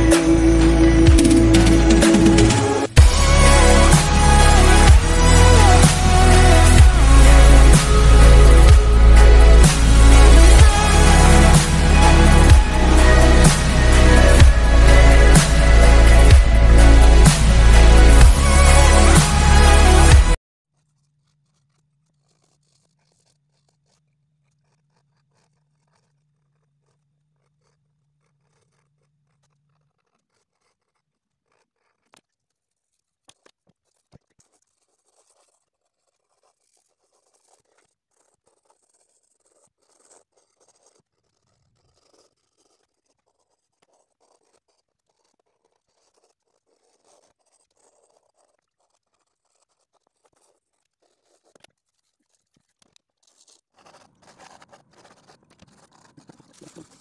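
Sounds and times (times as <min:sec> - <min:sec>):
low hum: 0:00.0 - 0:20.4
pencil scratching on paper: 0:00.0 - 0:57.0.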